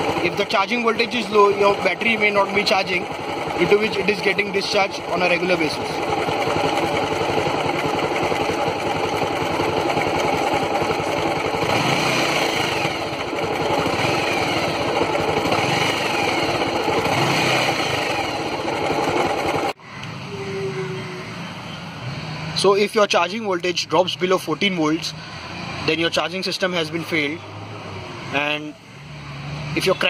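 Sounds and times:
motorcycle engine idling: 0.0s - 19.8s.

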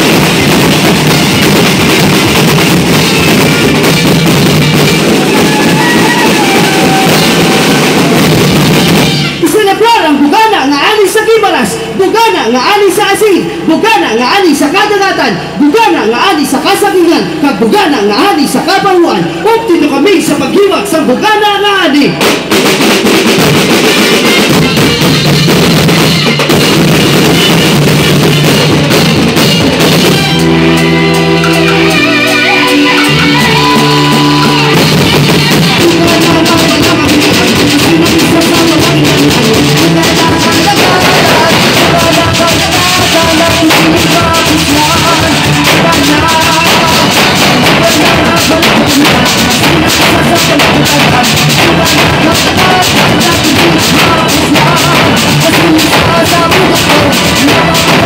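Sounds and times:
electric guitar: 0.0s - 9.4s, 24.0s - 58.0s
keyboard playing: 0.0s - 9.9s, 23.8s - 58.0s
drum band beating drums: 0.0s - 58.0s.

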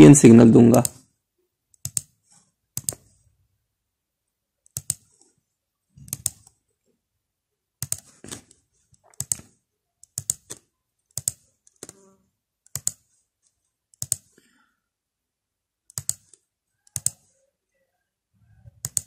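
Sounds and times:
computer mouse clicking: 0.7s - 1.1s, 1.7s - 3.2s, 4.6s - 5.4s, 6.0s - 6.6s, 7.8s - 13.2s, 13.9s - 14.4s, 15.9s - 17.3s, 18.8s - 19.0s.

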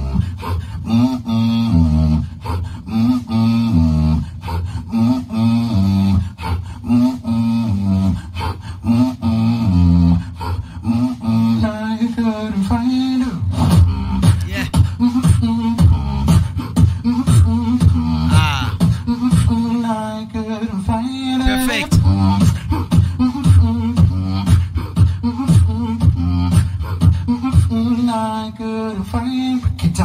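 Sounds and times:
beatbox beat: 8.9s - 19.9s, 21.4s - 30.0s
melodic vocal lines: 14.4s - 14.8s, 18.2s - 18.9s, 21.4s - 22.8s.

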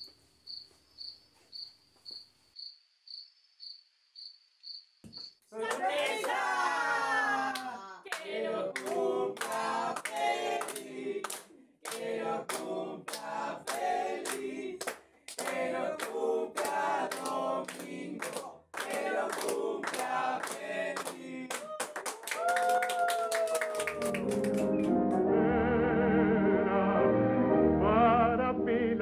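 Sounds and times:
people clapping in time: 5.6s - 6.6s, 7.5s - 25.3s
small group singing a celebration song: 5.6s - 22.1s.

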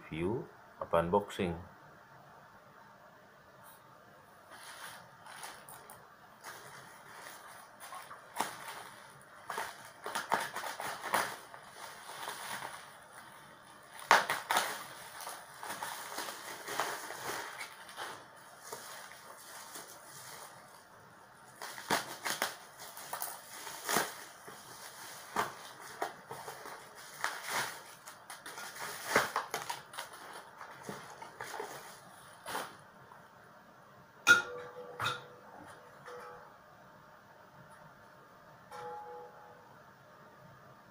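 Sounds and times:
paper packaging crinkling: 4.5s - 32.9s.

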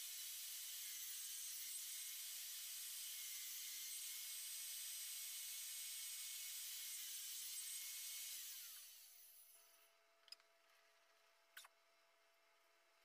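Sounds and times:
table saw running with high whine: 0.0s - 9.8s.

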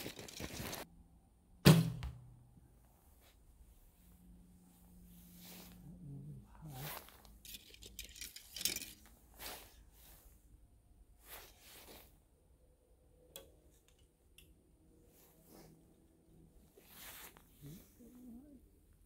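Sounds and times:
clothing and gear rustling: 0.0s - 0.9s, 2.8s - 6.0s, 6.7s - 10.4s, 11.2s - 12.2s, 15.1s - 18.1s.

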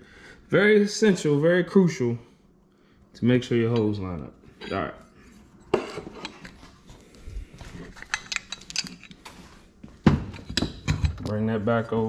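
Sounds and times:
hand tools and metal parts clinking: 7.8s - 9.3s.

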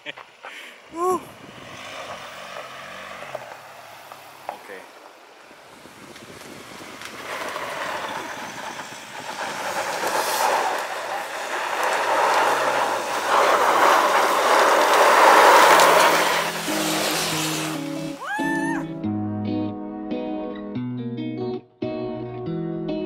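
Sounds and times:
vehicle rumbling over rough ground: 0.0s - 18.2s.

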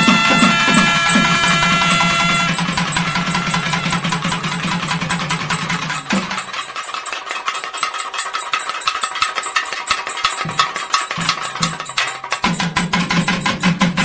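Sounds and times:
steady held tone: 0.0s - 13.4s
fast dense drumming: 0.0s - 14.0s.

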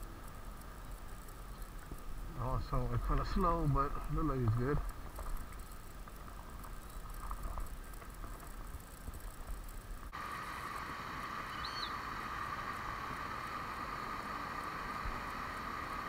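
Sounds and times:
water rushing from waterfall: 10.2s - 16.0s
high chirp: 11.5s - 12.0s.

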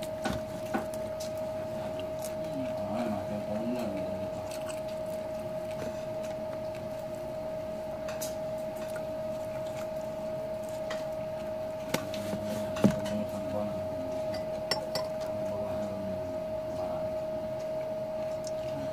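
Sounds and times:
person chewing food: 0.0s - 12.8s, 17.5s - 18.9s
steady hum: 0.0s - 18.9s.

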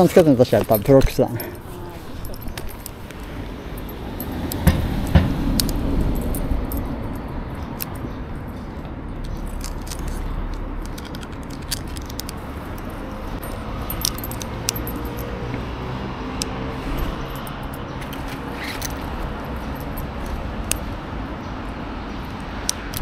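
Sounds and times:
metallic clicks and rattles: 9.2s - 15.3s.

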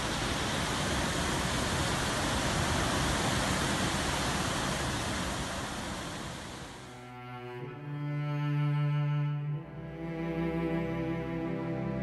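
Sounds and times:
waterfall roaring: 0.0s - 6.9s.

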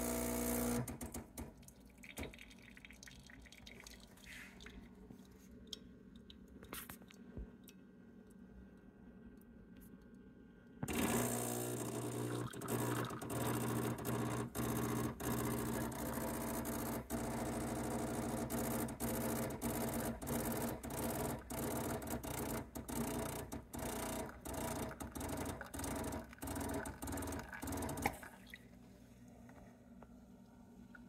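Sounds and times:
espresso machine pump buzzing: 0.0s - 0.9s, 10.8s - 28.2s.

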